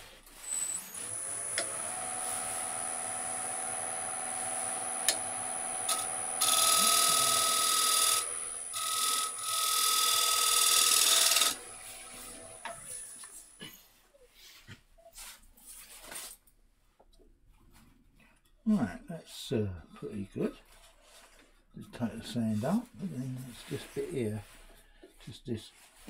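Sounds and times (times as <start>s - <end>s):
wood lathe running: 0.6s - 13.3s
turning tool scraping wood: 4.6s - 13.1s.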